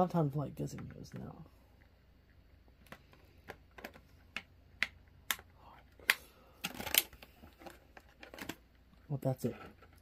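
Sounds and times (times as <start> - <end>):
hard objects clicking and tapping: 2.8 - 8.7.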